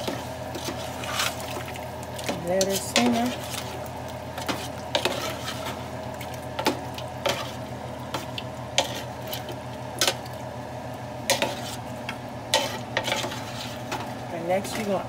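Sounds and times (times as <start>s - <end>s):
steady low hum: 0.0s - 15.0s
metal spoon scraping pot: 4.4s - 5.8s, 12.5s - 14.0s.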